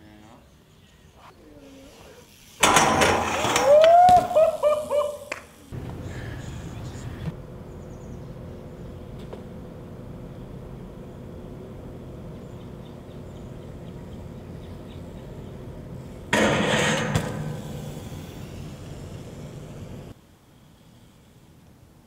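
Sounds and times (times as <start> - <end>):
bike crashing onto concrete stairs: 2.6 - 4.6, 16.3 - 18.7
steady hum: 4.6 - 20.2.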